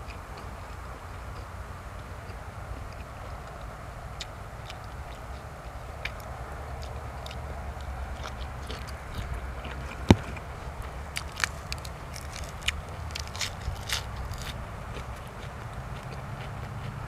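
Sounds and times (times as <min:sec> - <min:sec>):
person biting and chewing: 0:04.2 - 0:17.0
crisp snaps and clicks: 0:09.9 - 0:15.1.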